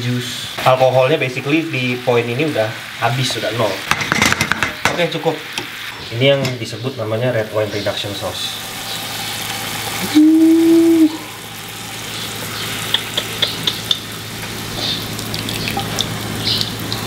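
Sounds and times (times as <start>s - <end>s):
hot sauce sizzling: 0.0s - 17.0s.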